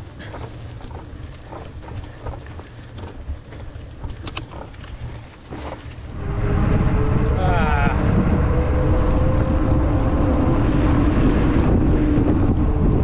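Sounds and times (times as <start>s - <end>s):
low riding rumble: 0.0s - 13.0s
sharp clicks: 4.1s - 4.6s.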